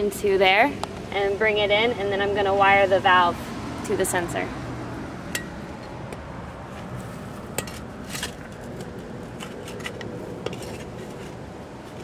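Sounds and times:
trowel scraping soil: 6.8 - 12.0.

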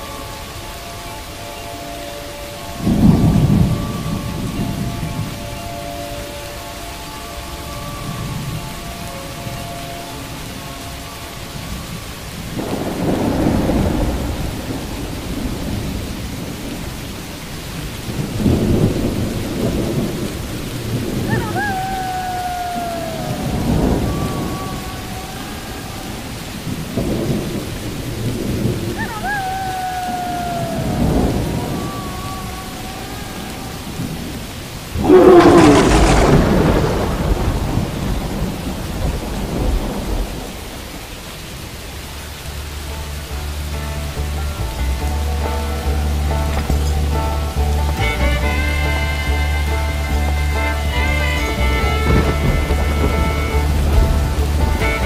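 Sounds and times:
steady rain: 0.0 - 55.0
thunder rolling: 2.3 - 10.6, 11.6 - 42.0, 44.9 - 55.0
loud thunderclap: 2.8 - 5.5, 12.5 - 17.0, 17.6 - 25.2, 26.1 - 41.2, 51.5 - 55.0.

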